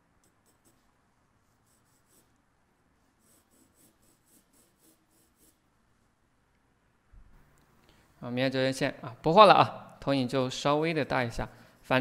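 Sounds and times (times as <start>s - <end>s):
pencil scratching on paper: 0.2s - 2.4s, 3.0s - 5.7s.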